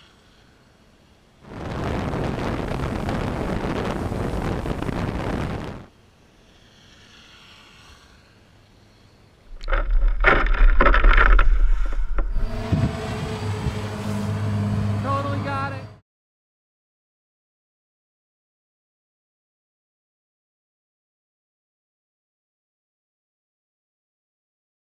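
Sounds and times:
water splashing from bucket: 0:09.5 - 0:12.0
low rumble: 0:09.5 - 0:16.0.

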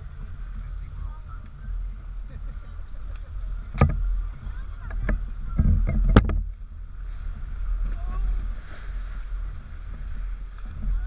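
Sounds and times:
boat motor rumble: 0:00.0 - 0:11.0
water on hull: 0:00.0 - 0:11.0
sharp knocks: 0:04.8 - 0:06.5.

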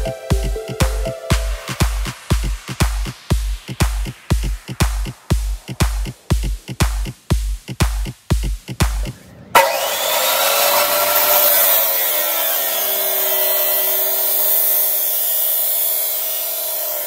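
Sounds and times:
background music beat: 0:00.0 - 0:09.4
chop saw grinding steel: 0:09.6 - 0:17.0.

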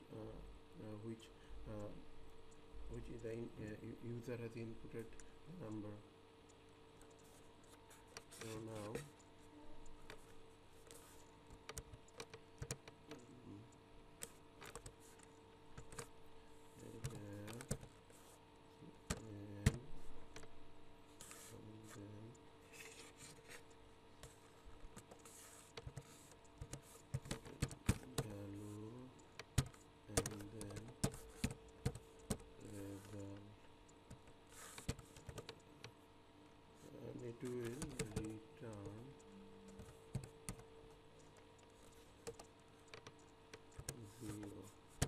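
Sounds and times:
keyboard typing: 0:09.9 - 0:13.5, 0:14.2 - 0:16.1, 0:16.8 - 0:18.3, 0:22.8 - 0:33.5, 0:34.1 - 0:35.9, 0:37.1 - 0:45.0.

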